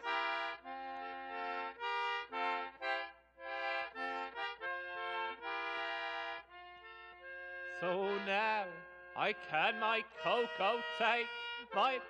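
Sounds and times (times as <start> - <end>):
free-reed instrument melody: 0.0 - 12.0
folk song singing: 7.7 - 12.0.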